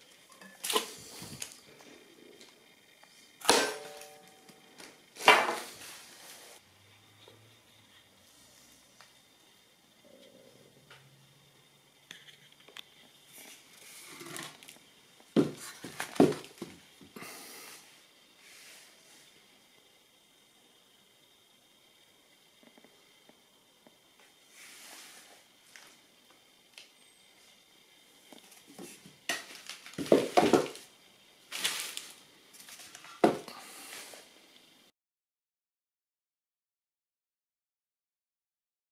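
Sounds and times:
dull knocks of wood and metal: 15.4s - 16.8s
rustling: 31.5s - 33.2s.

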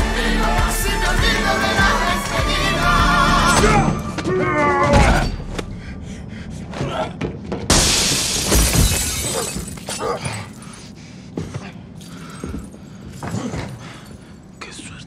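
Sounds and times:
glass shattering crash: 7.7s - 10.6s.

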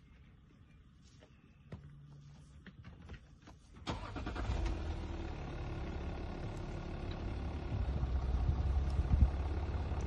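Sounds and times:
faint low rumble: 5.1s - 10.0s.

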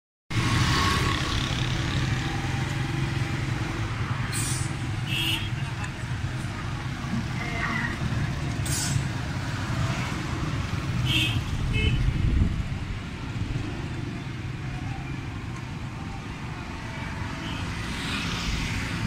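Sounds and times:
traffic rumble: 0.3s - 19.0s
short hissing sounds: 4.3s - 4.8s.

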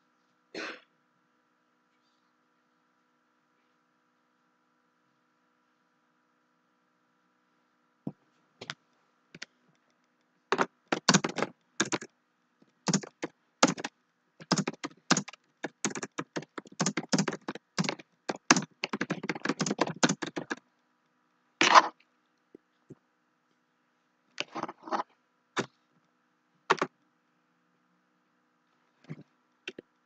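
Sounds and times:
typing on computer keyboard: 10.5s - 12.1s, 12.9s - 20.6s, 26.7s - 26.9s.

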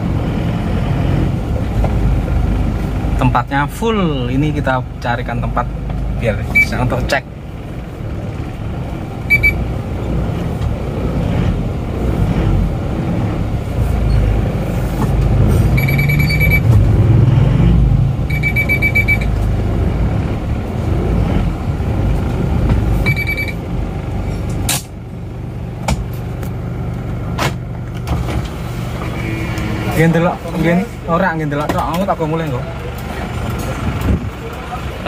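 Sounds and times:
diesel engine inside cabin: 0.0s - 35.0s
road noise: 0.0s - 35.0s
rapid electronic beeps: 9.3s - 9.6s, 15.8s - 16.7s, 18.3s - 19.3s, 23.0s - 23.6s.

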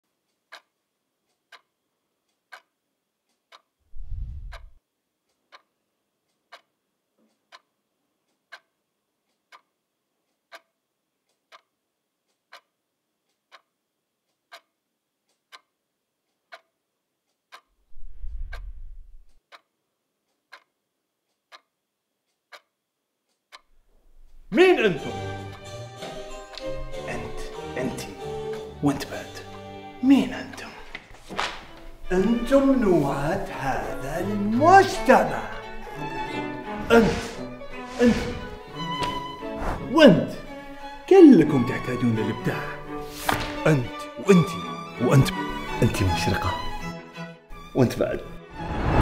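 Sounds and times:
clock ticking: 0.1s - 48.1s
deep low booms: 3.9s - 4.8s.

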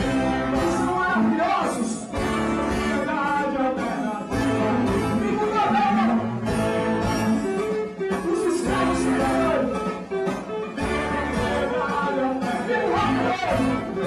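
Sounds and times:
man singing into a microphone: 0.0s - 6.6s, 7.5s - 10.0s, 10.8s - 14.0s
live band playing: 0.0s - 14.0s.

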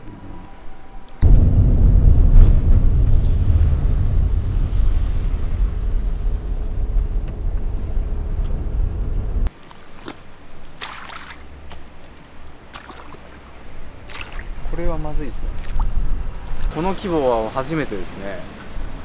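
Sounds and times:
car driving on wet road: 4.4s - 9.5s
rubber boots squelching in mud: 9.5s - 13.5s, 14.1s - 14.5s.

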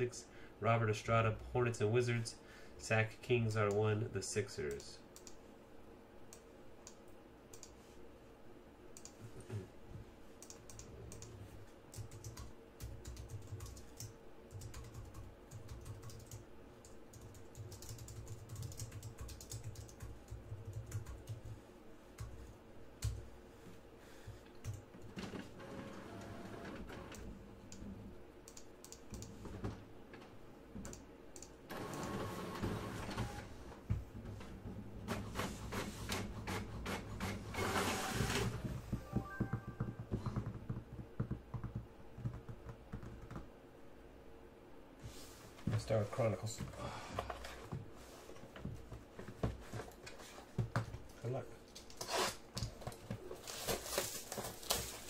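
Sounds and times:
keyboard typing: 10.4s - 21.6s, 39.0s - 43.5s
rustling noise: 53.2s - 55.0s.

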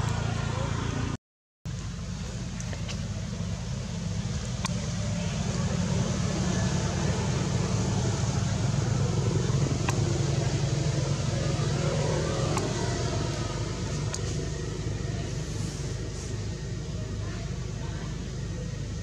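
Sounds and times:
steady low rumble: 0.0s - 19.0s
faint clicks: 2.5s - 3.1s, 4.3s - 4.9s.

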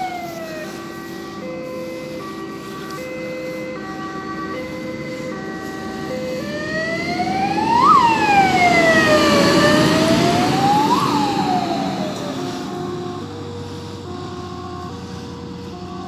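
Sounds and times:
fire engine siren: 0.0s - 16.0s
road noise: 0.0s - 16.0s
truck engine: 0.0s - 16.0s.

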